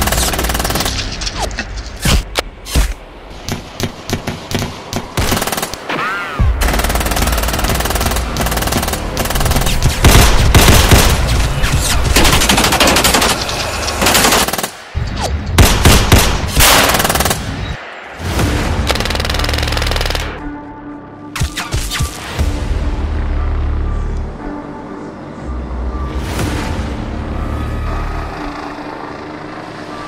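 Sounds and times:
rapid gunfire: 0.0 - 1.0, 3.5 - 5.8, 6.6 - 13.4, 14.0 - 14.9, 15.6 - 17.6, 18.9 - 20.4
gunshots: 2.0 - 13.4, 14.0 - 20.4.

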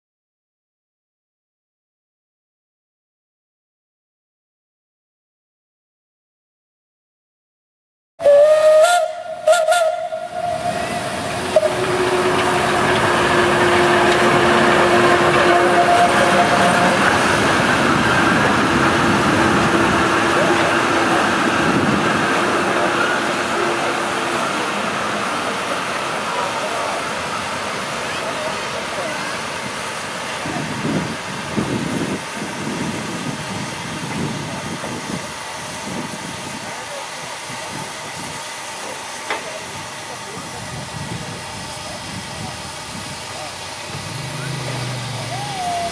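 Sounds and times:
steam whistle blasts: 8.2 - 17.1
steam hissing: 8.3 - 45.9
train wheels rumbling and knocking: 9.5 - 45.9.

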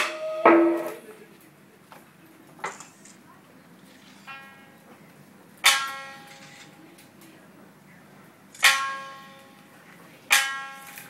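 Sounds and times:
shamisen notes: 0.0 - 1.0.

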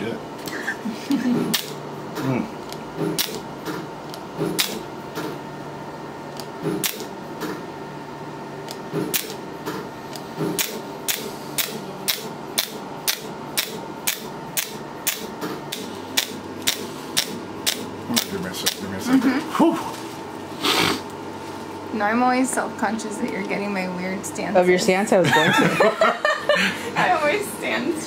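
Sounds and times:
laser firing sharp clicks: 1.5 - 1.8, 3.0 - 4.8, 6.4 - 7.1, 8.7 - 9.4, 10.5 - 18.8.

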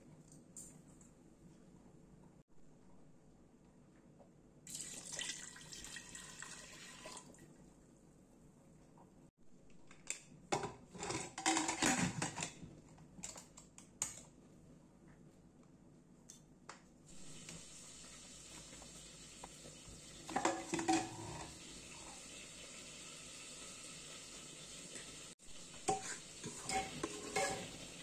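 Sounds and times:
metal lid clattering and scraping: 10.6 - 12.6, 20.3 - 21.6, 25.9 - 28.0
faint steady hiss: 14.2 - 20.7.

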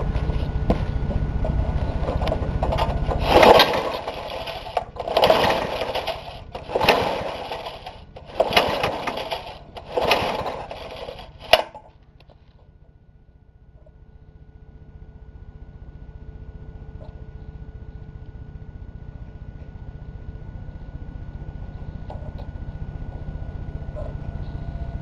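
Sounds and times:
recoil starter cranking whirr: 0.0 - 12.6
steady low rumble: 0.0 - 25.0.

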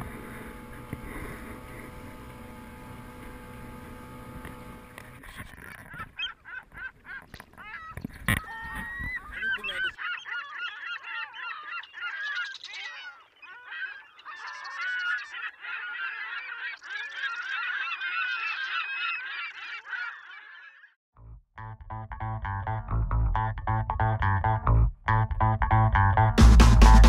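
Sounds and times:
flock of birds chirping: 0.0 - 21.0.

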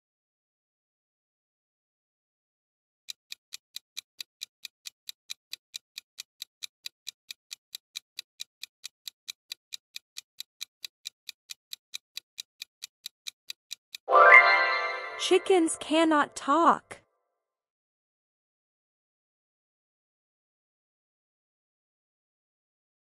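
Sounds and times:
clock ticking quickly: 3.1 - 14.1.

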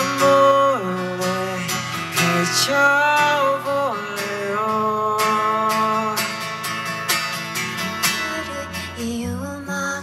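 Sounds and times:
man singing: 0.0 - 6.6, 8.0 - 10.0
acoustic guitar strummed: 0.0 - 10.0.

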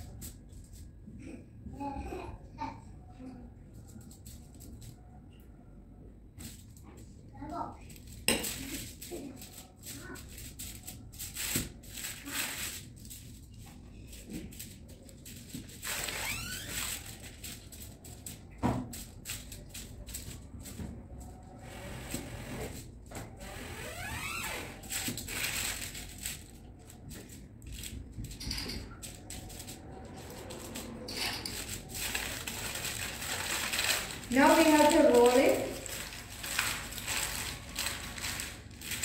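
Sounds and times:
aluminium foil crinkling: 0.0 - 0.8, 3.8 - 5.1, 7.8 - 21.6, 23.9 - 39.0.

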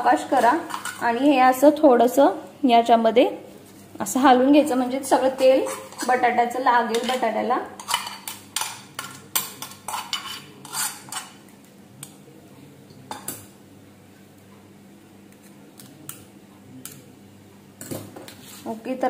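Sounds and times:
metal utensils clinking on pan: 0.2 - 1.2, 5.2 - 11.4.

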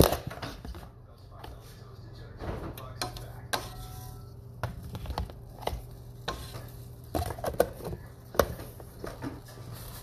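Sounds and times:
spatula scraping frying pan: 3.0 - 4.4, 5.5 - 7.8, 8.4 - 10.0
butter sizzling: 3.5 - 10.0.

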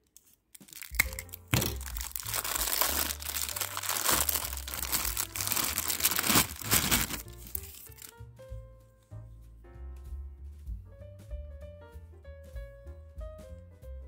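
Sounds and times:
snips cutting plastic wrapping: 0.0 - 8.1
plastic bag crinkling: 0.1 - 8.2.

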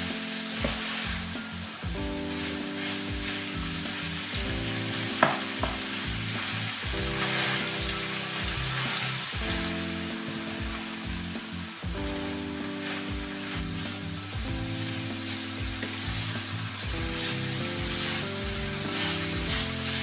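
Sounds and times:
food sizzling in a frying pan: 0.0 - 20.0
soft background music: 0.0 - 20.0
spatula knocking on pan: 0.6 - 1.1, 4.4 - 6.2.

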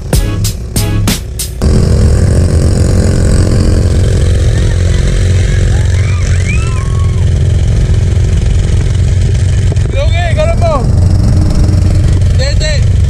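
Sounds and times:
music track: 0.0 - 1.6
quad engine droning: 0.0 - 13.0.

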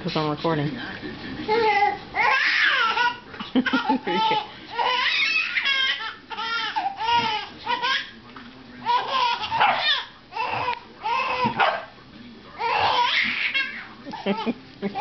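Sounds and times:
baby squealing and giggling: 1.5 - 8.1, 12.6 - 14.4.

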